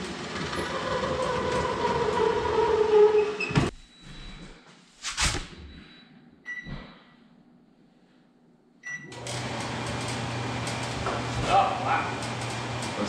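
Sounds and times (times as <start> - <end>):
microwave control panel beeps: 5.6 - 6.8, 8.8 - 9.2
microwave running hum and fan: 8.8 - 13.0.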